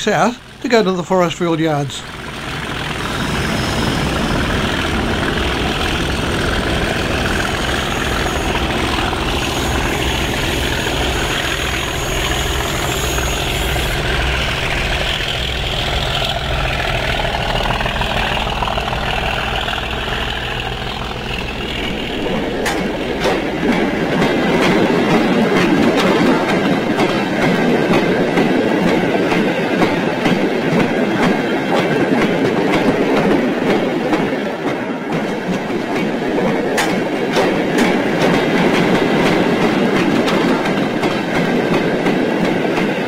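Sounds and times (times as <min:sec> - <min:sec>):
locomotive engine low rumble: 0:00.0 - 0:29.4
wheels clicking over rail joints: 0:02.0 - 0:43.0.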